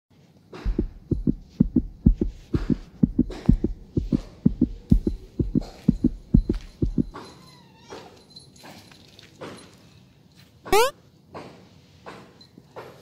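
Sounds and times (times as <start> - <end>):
low thumps in pairs: 0.6 - 7.2.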